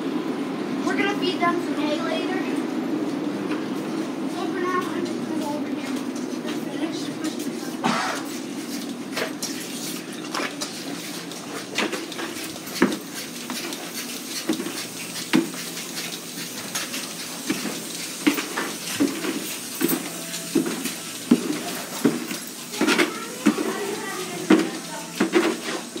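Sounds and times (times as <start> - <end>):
ventilation fans humming: 0.0 - 26.0
chains clanking on steel pipes: 18.2 - 20.8.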